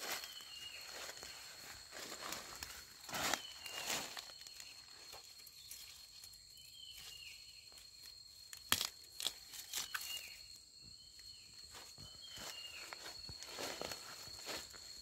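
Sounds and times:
dry leaves crackling: 0.0s - 6.4s
stem snapping: 8.5s - 10.2s.

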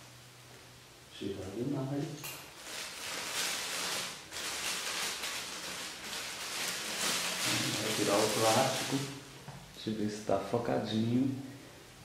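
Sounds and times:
plastic film crinkling: 2.4s - 9.4s.

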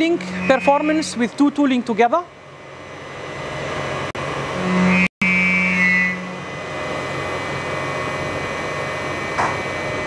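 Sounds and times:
high whine: 0.0s - 10.0s
lathe machine noise: 0.0s - 10.0s
low machine hum: 0.0s - 10.0s.

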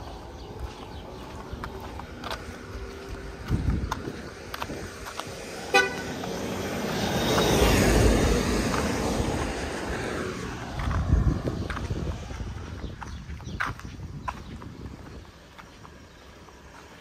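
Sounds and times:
motor vehicle passing: 0.0s - 13.8s
vehicle horn toot: 5.7s - 6.2s.

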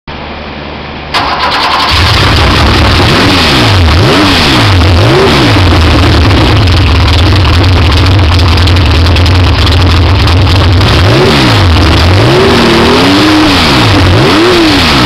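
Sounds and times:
engine idling and revving: 1.1s - 15.0s.

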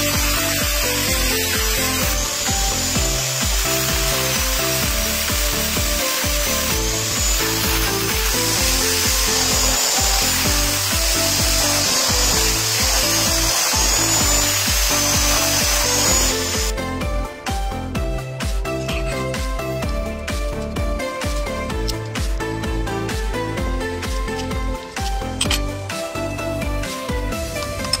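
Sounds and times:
grinding wheel cutting steel: 0.0s - 16.9s
background music with steady beat: 0.0s - 28.0s.

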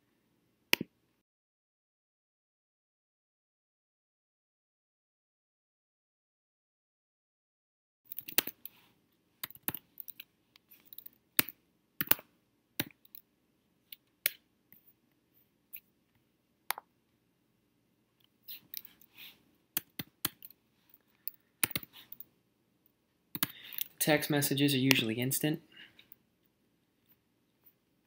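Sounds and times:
mouse buttons clicking: 10.9s - 13.2s, 19.8s - 20.5s, 21.6s - 22.2s.

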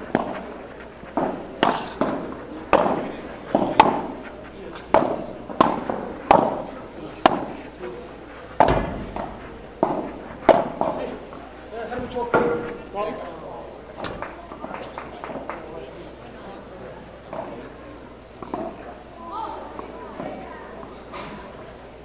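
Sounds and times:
ball cracking off rackets: 0.1s - 12.8s
ball bouncing on court: 8.6s - 11.0s.

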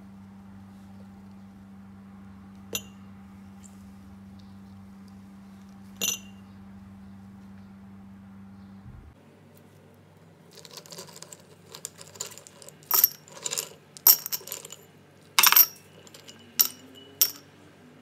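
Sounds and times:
ice cubes clinking against glass: 10.5s - 14.8s, 15.4s - 17.4s.

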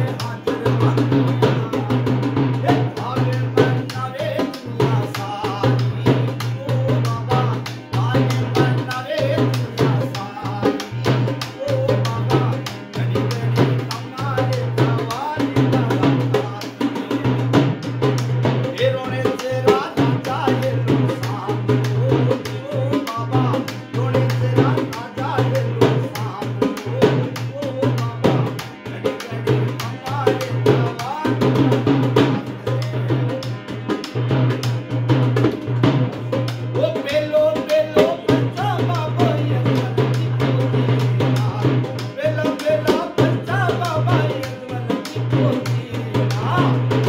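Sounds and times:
barrel drum beating fast rhythm: 0.0s - 47.0s
harmonium drone and melody: 0.0s - 47.0s
man singing: 0.0s - 47.0s.

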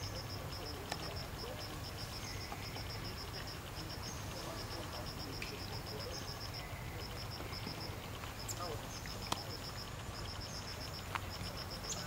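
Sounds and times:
insect chirping in fast pulses: 0.0s - 12.0s.

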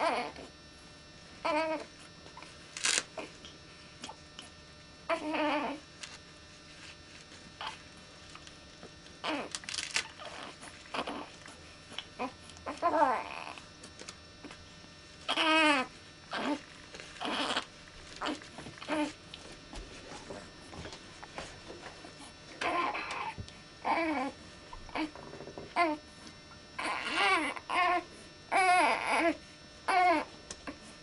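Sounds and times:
baby crying: 0.0s - 0.4s, 1.4s - 1.9s, 5.1s - 5.8s, 9.2s - 9.5s, 10.2s - 11.3s, 12.2s - 13.6s, 15.3s - 16.6s, 17.2s - 19.2s, 22.6s - 25.2s, 26.8s - 30.3s
diaper crackling: 1.5s - 3.3s, 9.2s - 14.2s, 15.3s - 21.5s, 22.6s - 23.4s.

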